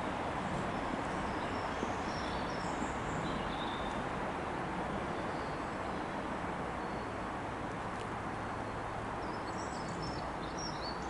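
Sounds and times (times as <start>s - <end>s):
outdoor background noise: 0.0s - 11.0s.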